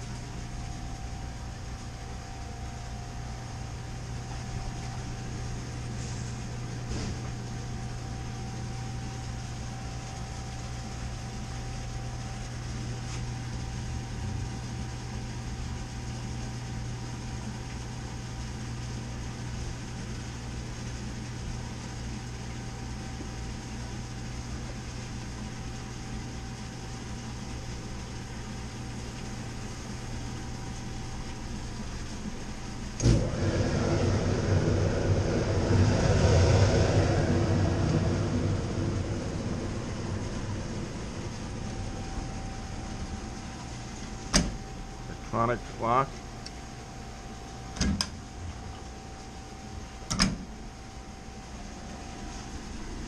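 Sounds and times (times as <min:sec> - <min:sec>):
faint steady whine: 0:00.0 - 0:53.0
machine drone: 0:32.9 - 0:46.0.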